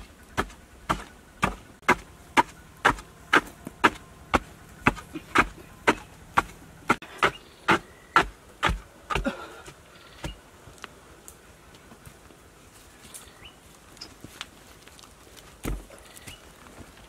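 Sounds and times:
digging tool striking hard earth: 0:00.0 - 0:10.4
birds chirping: 0:00.0 - 0:12.0, 0:12.8 - 0:14.3, 0:15.6 - 0:17.0.

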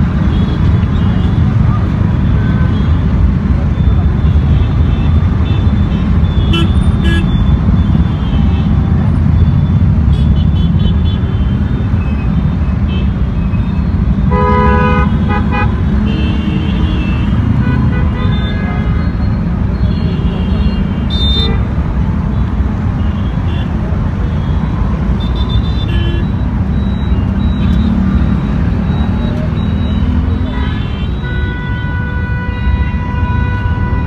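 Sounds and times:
traffic rumble: 0:00.0 - 0:34.0
loud vehicle horn blasts: 0:14.3 - 0:18.9.

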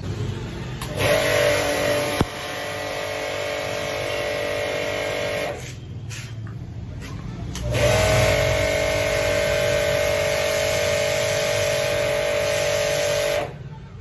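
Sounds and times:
high-pressure water jet hissing: 0:07.8 - 0:13.5.

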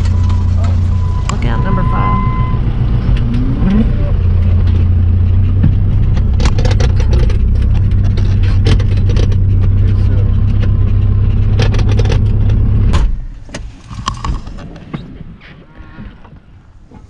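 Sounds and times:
steady high beep: 0:00.0 - 0:02.7
tractor engine running: 0:00.0 - 0:14.7
cab and loader rattling: 0:00.0 - 0:15.1.

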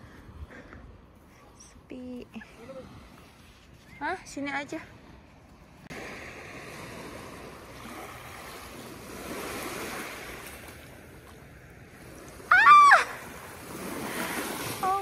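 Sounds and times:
small waves lapping on shore: 0:01.2 - 0:15.0
high rising and falling cry: 0:12.5 - 0:13.3.

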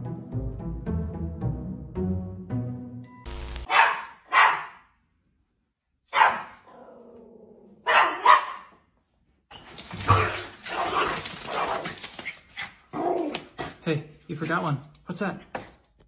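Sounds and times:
background music: 0:00.0 - 0:03.7
small dog barking: 0:03.7 - 0:04.9, 0:06.1 - 0:06.8, 0:07.8 - 0:08.8.

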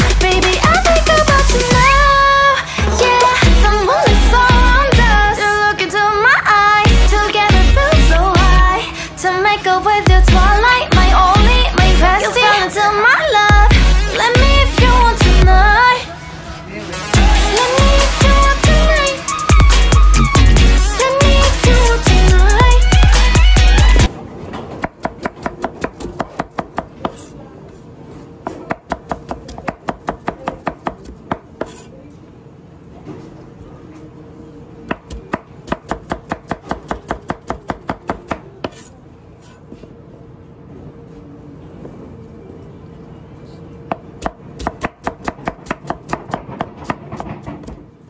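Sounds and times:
music: 0:00.0 - 0:16.0, 0:16.6 - 0:24.1.

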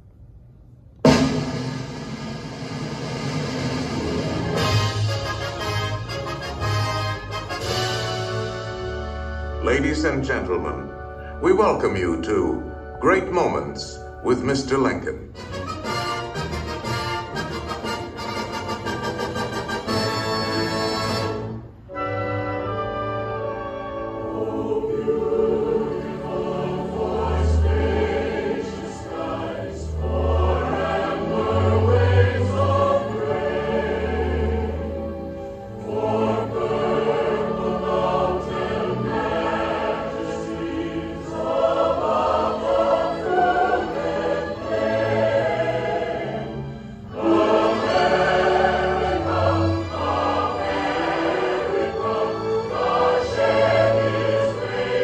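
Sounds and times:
instrumental accompaniment: 0:01.0 - 0:55.0
choir singing: 0:15.8 - 0:55.0.

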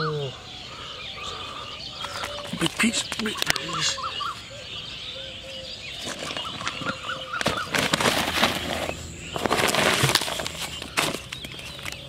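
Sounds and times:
bird chirps: 0:00.0 - 0:12.0
plastic sack rustling: 0:06.0 - 0:12.0.

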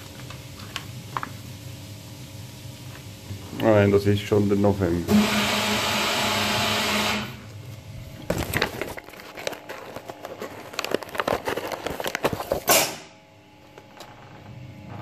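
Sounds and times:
calendar pages rustling: 0:08.2 - 0:12.7.

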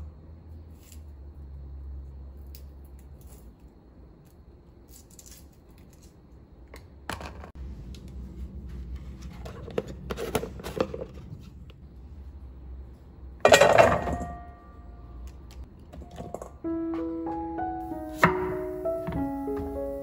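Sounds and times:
garlic skins tearing and clicking: 0:04.3 - 0:06.2.

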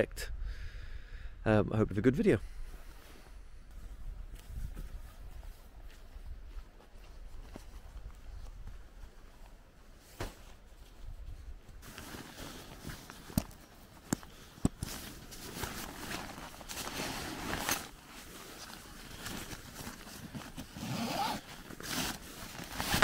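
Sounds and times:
footsteps on grass: 0:03.7 - 0:11.4
rustling fabric bag: 0:07.0 - 0:23.0.

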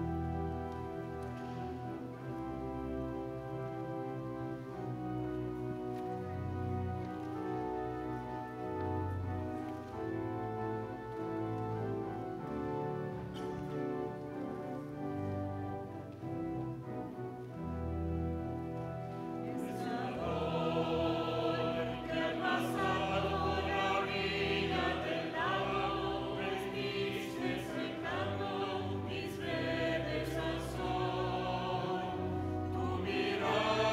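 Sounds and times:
choir singing: 0:19.4 - 0:33.9.

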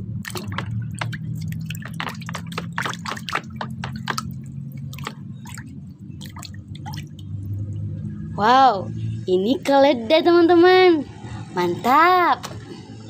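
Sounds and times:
hand splashing in soapy water: 0:00.2 - 0:07.2
water dripping: 0:00.2 - 0:08.2.

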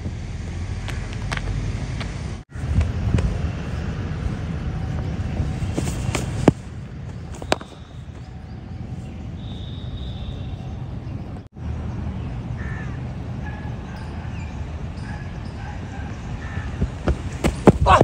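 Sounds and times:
birds calling: 0:05.7 - 0:11.5, 0:12.2 - 0:18.0
cricket bat striking ball: 0:07.3 - 0:07.8, 0:17.0 - 0:18.0.

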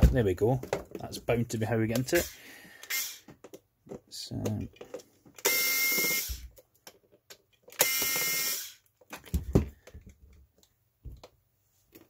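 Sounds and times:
electric screwdriver whirring: 0:02.2 - 0:03.2, 0:05.4 - 0:06.4, 0:07.8 - 0:08.8.

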